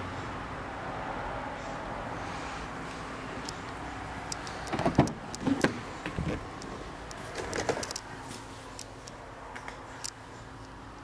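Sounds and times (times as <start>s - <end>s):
car door latch clicks and clunks: 4.7s - 6.6s.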